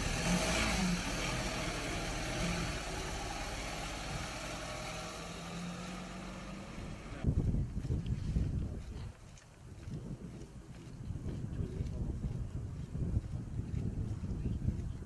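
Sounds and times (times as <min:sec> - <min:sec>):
van engine humming: 0:00.0 - 0:07.3.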